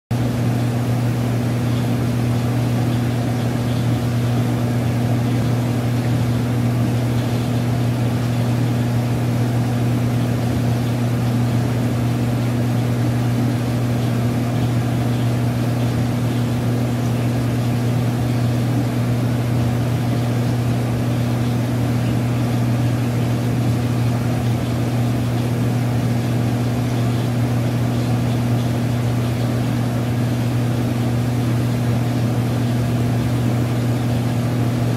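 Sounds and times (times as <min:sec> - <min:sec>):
aquarium pump humming: 0:00.1 - 0:34.9
soft water noise: 0:00.2 - 0:34.9.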